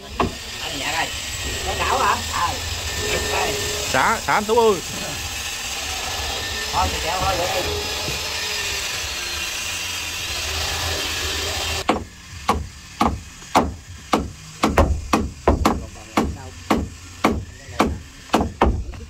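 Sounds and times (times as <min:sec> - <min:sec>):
power tool running: 0:00.0 - 0:19.0
hammer driving nails into wood: 0:11.9 - 0:18.9.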